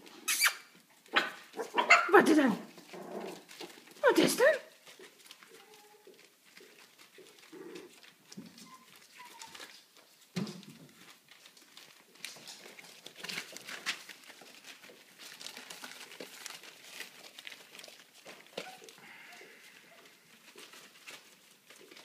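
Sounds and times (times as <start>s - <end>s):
paper rustling and crinkling: 2.6s - 22.0s
puppies whining and grunting: 4.8s - 9.9s, 15.2s - 21.8s.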